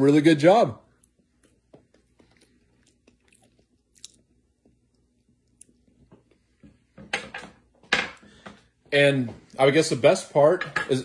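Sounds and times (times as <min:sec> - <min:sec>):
person chewing: 0:00.9 - 0:06.4.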